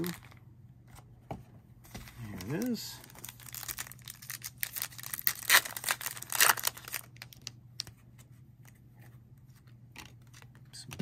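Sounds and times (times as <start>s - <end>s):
foil wrapper tearing and crinkling: 2.4s - 7.9s.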